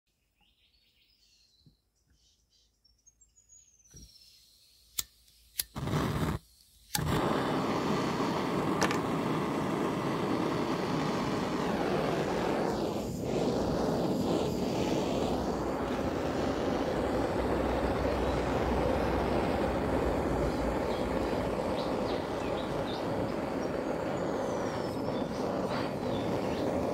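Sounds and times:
lighter clicking: 4.9s - 26.9s
flame burst: 5.0s - 26.9s
blowtorch rushing hiss: 5.6s - 26.9s.

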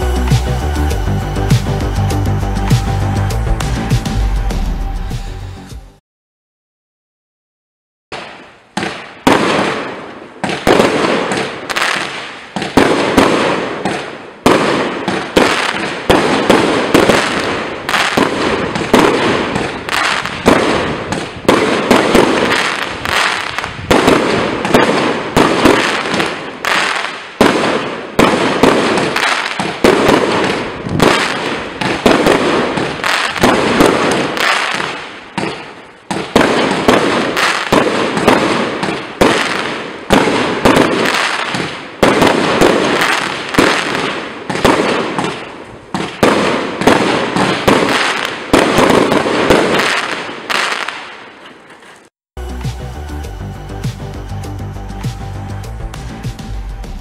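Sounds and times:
firework barrage firing: 8.1s - 52.1s.

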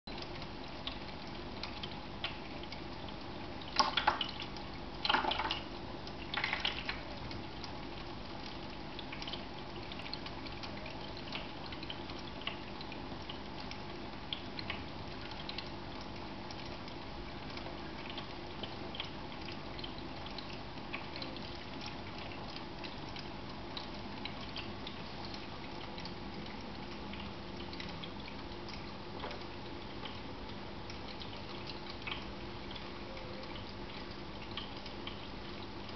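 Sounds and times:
water drips: 0.1s - 35.9s
water trickling from fountain: 0.1s - 35.9s
kitten splashing water: 3.7s - 7.8s.

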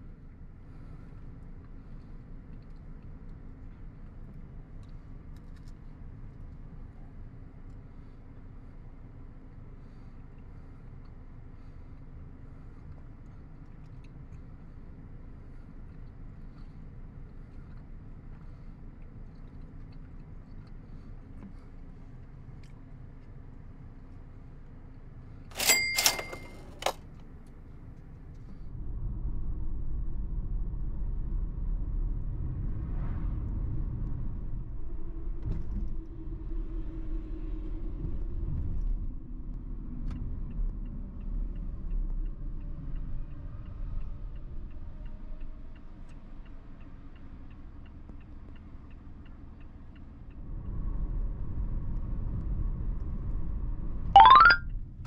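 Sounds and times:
car engine and tyre rumble: 0.0s - 25.6s, 26.4s - 54.1s
brief ringing tone: 25.6s - 26.6s, 54.2s - 54.6s.

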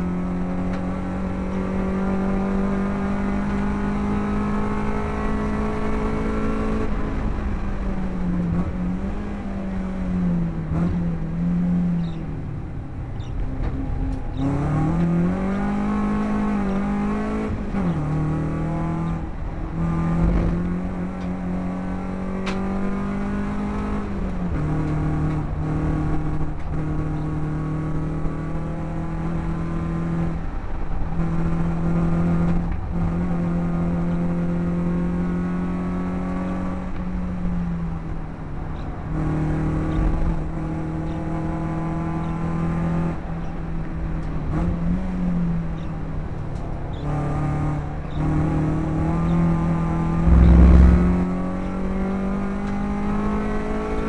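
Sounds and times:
race car engine revving: 46.9s - 54.0s
road noise rushing: 48.7s - 53.0s.

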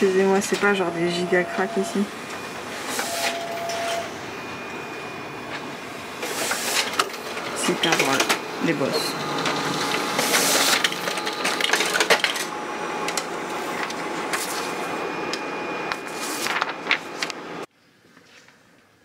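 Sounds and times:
laser printer whirring: 0.0s - 17.7s
printer clicks: 6.3s - 8.4s.

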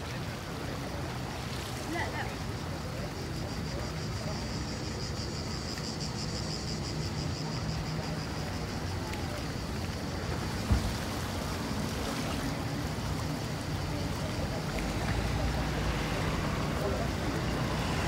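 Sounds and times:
water noise: 0.0s - 18.0s
wind: 0.0s - 18.0s
thump: 10.6s - 11.0s.

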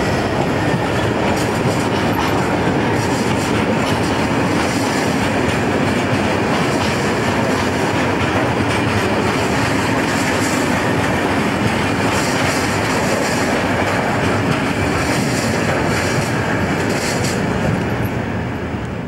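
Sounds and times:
freight train wheels rumbling on rails: 0.0s - 19.0s.

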